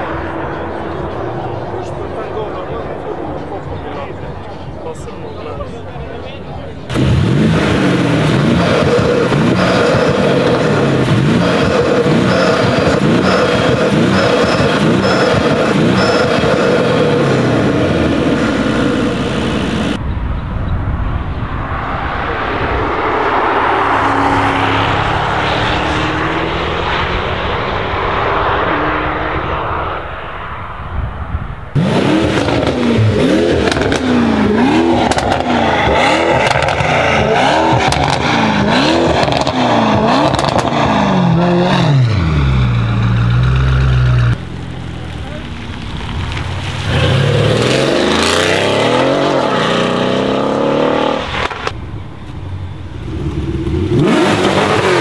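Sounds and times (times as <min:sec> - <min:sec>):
car driving on race track: 0:00.0 - 0:55.0
car engine revving hard: 0:06.9 - 0:20.0, 0:31.8 - 0:44.4, 0:46.8 - 0:51.8, 0:53.0 - 0:55.0.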